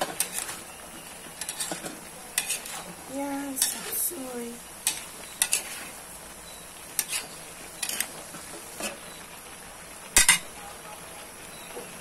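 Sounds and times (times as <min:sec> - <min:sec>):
metal spatula scraping a wok: 0:00.0 - 0:09.1.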